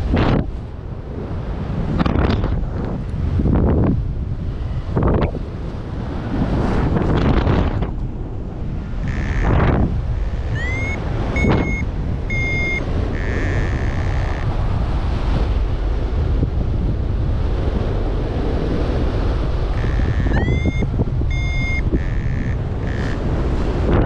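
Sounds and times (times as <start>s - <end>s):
wind rushing over microphone: 0.0s - 24.0s
variometer electronic beeps: 9.0s - 14.5s, 19.8s - 23.2s.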